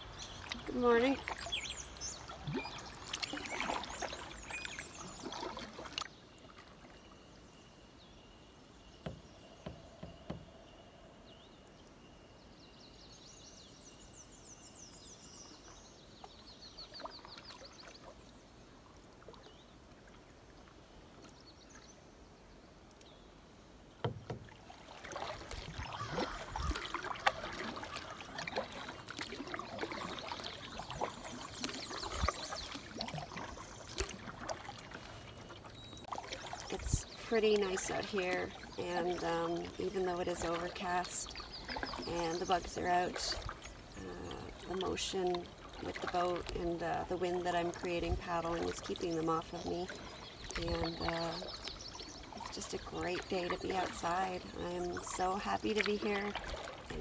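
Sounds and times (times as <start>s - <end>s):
paddle splashing and dripping: 0.0s - 10.8s, 13.8s - 22.0s, 22.8s - 57.0s
paddle knocks: 9.0s - 10.5s, 24.0s - 29.2s
bird singing faintly: 25.2s - 57.0s.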